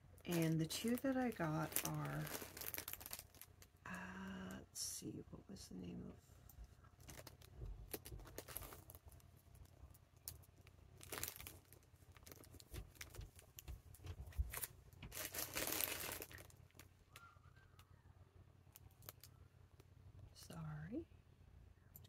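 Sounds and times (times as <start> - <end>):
plastic packaging crinkling: 0.2 - 3.8, 7.0 - 17.2, 18.8 - 19.3.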